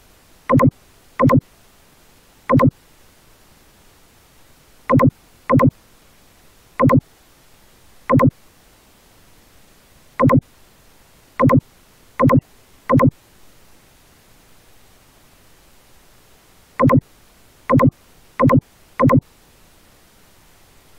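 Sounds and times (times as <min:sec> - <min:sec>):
faint background hiss: 0:00.0 - 0:20.9
short electronic beeps: 0:00.5 - 0:01.4, 0:02.5 - 0:02.7, 0:04.9 - 0:05.7, 0:06.8 - 0:07.0, 0:08.1 - 0:08.3, 0:10.2 - 0:10.4, 0:11.4 - 0:11.6, 0:12.2 - 0:13.1, 0:16.8 - 0:17.0, 0:17.7 - 0:19.2.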